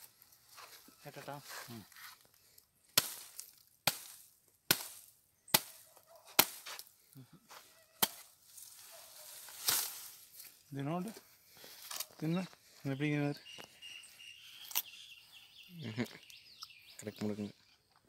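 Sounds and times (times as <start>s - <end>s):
machete chopping palm trunk: 2.9s - 6.9s, 8.0s - 8.3s, 9.6s - 10.1s.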